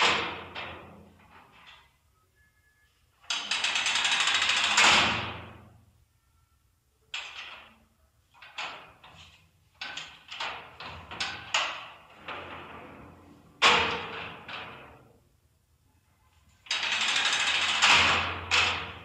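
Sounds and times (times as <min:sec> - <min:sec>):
knocks and clunks with room echo: 0:09.8 - 0:15.1.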